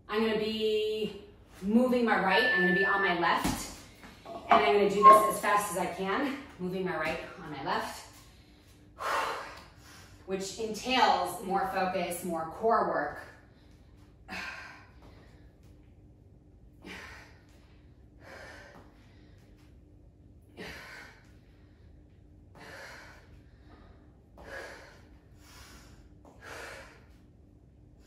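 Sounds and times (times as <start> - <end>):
woman breathing hard: 16.8 - 19.6, 22.6 - 27.2.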